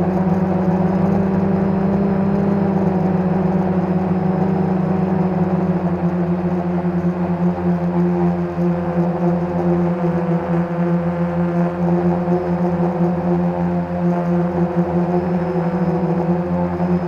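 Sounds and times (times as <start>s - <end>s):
quadcopter propellers humming: 0.0s - 17.0s.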